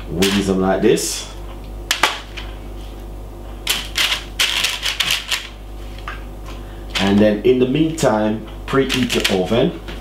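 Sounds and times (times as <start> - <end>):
paper crinkling on a baking tray: 8.8 - 9.6.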